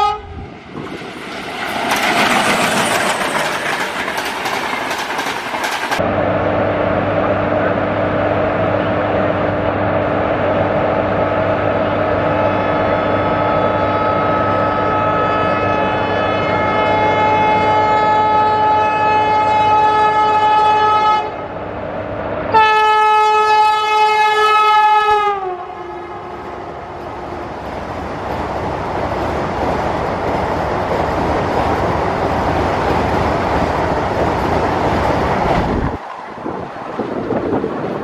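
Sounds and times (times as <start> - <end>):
train horn blasts: 0.0 - 0.5, 12.3 - 21.5, 22.5 - 27.0
train wheels rumbling on rails: 0.0 - 12.4, 26.0 - 38.0.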